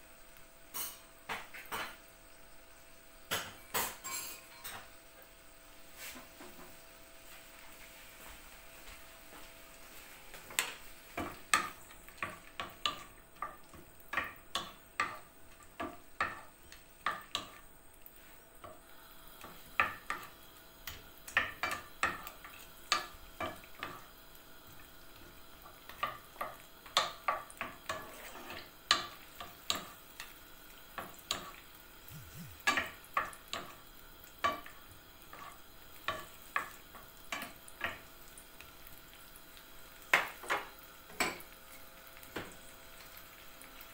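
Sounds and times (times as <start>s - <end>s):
faint frying sizzle: 0.0s - 43.9s
wooden spoon scraping a pan: 27.8s - 28.7s.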